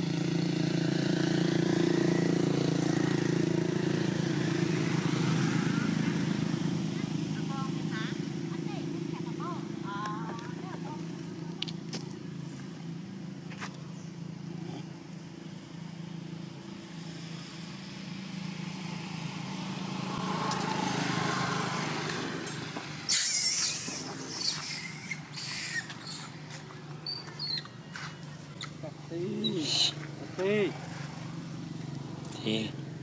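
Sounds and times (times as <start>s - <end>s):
vehicle engine hum: 0.0s - 33.0s
loud scuffs and rustles: 25.8s - 28.8s.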